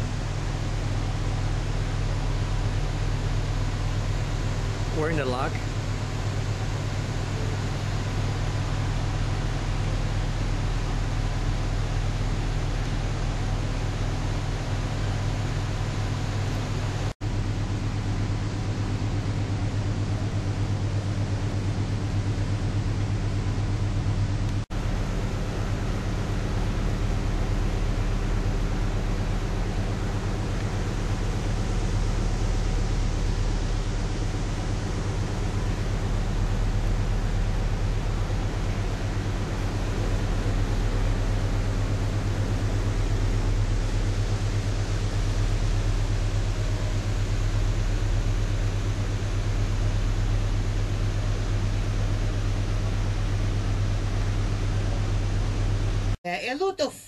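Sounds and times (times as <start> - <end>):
ship engines droning: 0.0 - 17.1, 24.4 - 48.5.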